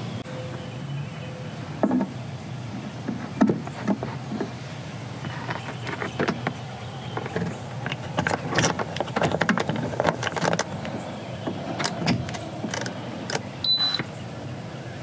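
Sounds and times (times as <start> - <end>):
clicks and knocks of handling: 5.2 - 13.5.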